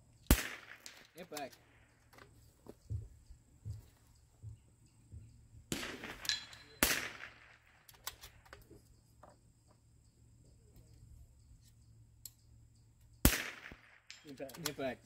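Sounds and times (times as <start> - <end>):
rifle shot crack: 0.3 - 1.3, 5.7 - 7.8, 13.2 - 14.2.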